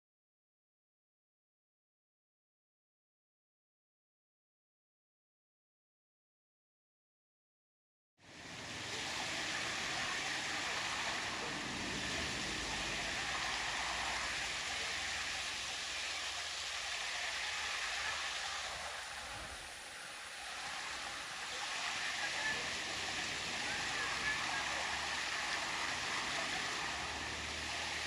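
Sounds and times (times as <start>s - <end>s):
stream rushing over rocks: 8.3s - 28.0s.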